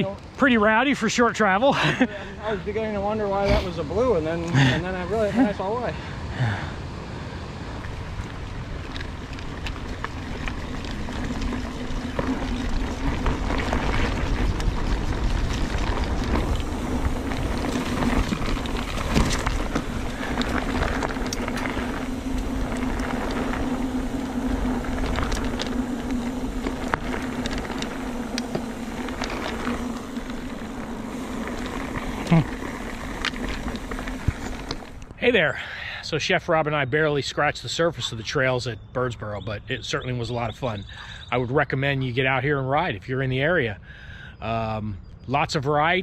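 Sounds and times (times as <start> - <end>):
steady hum: 0.0 - 36.1
bike tyre and trail noise: 0.0 - 46.0
bike rattles and knocks: 8.8 - 35.2.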